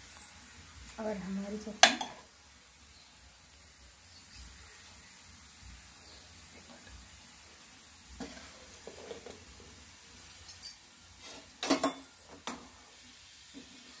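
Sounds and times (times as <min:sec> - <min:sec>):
metal plate clinking on pot: 0:11.3 - 0:12.4.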